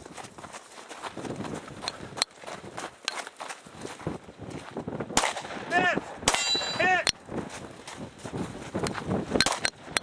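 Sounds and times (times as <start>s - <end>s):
pistol shots: 5.2s - 6.8s
person shouting: 5.7s - 6.0s, 6.8s - 7.1s
steel plate ringing: 6.3s - 6.9s.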